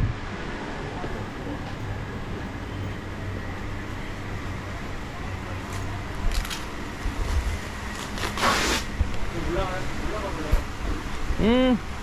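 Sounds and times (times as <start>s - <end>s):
background chatter: 0.6s - 8.0s.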